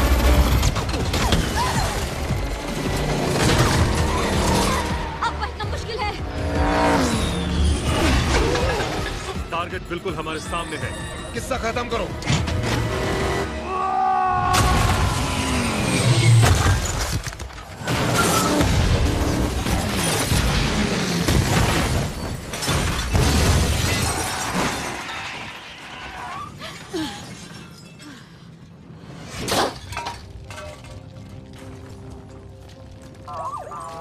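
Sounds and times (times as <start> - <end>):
shattering debris and impacts: 0.0 - 5.0, 14.5 - 26.2, 29.3 - 32.0
dramatic music: 0.0 - 16.4
vehicle crashing through concrete: 14.5 - 25.9.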